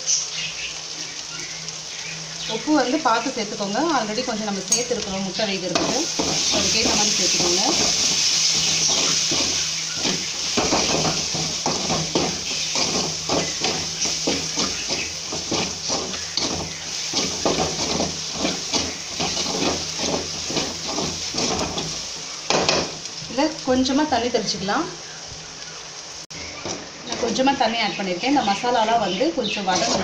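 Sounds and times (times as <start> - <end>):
masala sizzling in a pan: 0.0 - 30.0
spatula stirring and scraping: 4.7 - 23.2.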